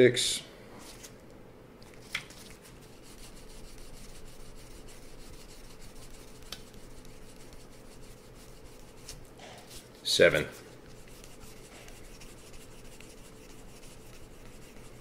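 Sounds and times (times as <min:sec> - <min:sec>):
nail file rubbing on metal: 0:02.9 - 0:09.2, 0:10.8 - 0:15.0.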